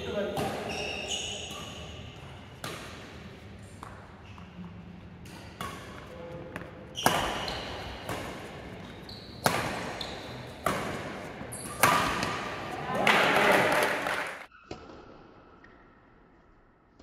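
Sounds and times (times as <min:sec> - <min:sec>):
rackets hitting shuttlecock: 0:00.2 - 0:04.5, 0:05.2 - 0:13.4.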